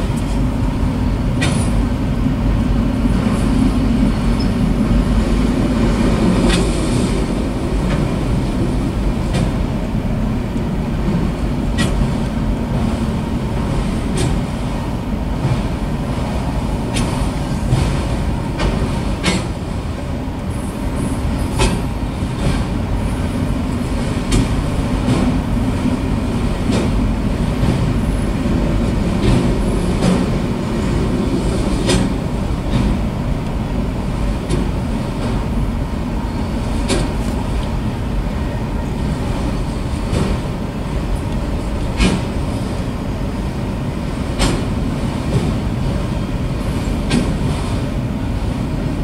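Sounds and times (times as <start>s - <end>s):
train wheels rumbling on rail: 0.0s - 49.0s
wheels clacking over rail joints: 16.5s - 19.7s, 20.3s - 35.7s, 39.5s - 43.3s, 43.9s - 48.1s.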